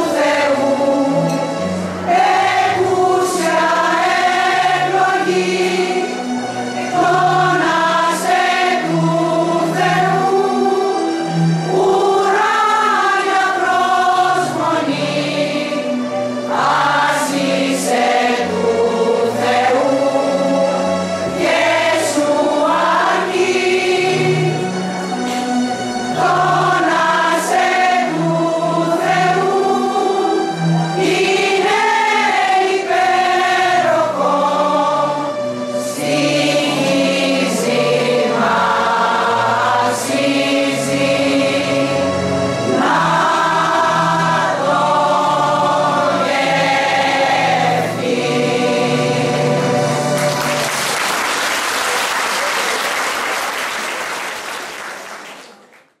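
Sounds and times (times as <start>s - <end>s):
women's choir singing: 0.0s - 50.7s
audience applauding: 50.1s - 56.0s.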